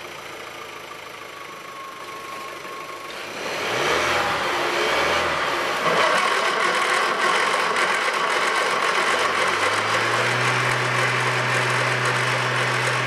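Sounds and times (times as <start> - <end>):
starter motor cranking engine: 5.9 - 13.0.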